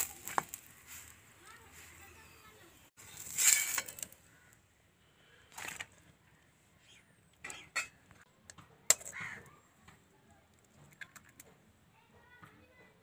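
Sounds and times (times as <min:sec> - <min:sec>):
spoon scraping: 0:03.2 - 0:04.1.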